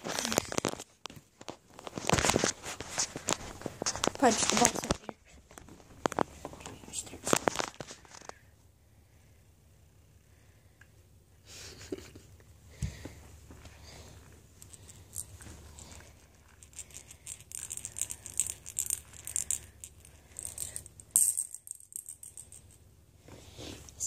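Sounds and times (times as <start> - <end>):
rattle toy jingling: 14.6 - 22.8.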